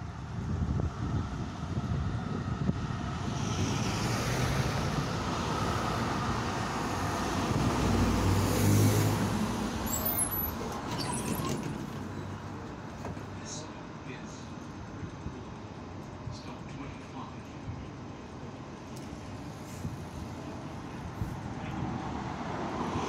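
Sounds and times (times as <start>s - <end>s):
tram running and motor hum: 9.0s - 22.8s
tram brakes squeaking: 9.7s - 12.6s.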